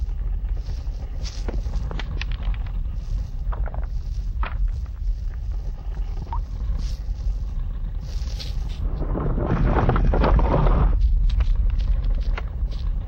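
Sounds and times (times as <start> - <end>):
low wind-like rumble: 0.0 - 13.0
light clicks on stones: 0.4 - 7.1.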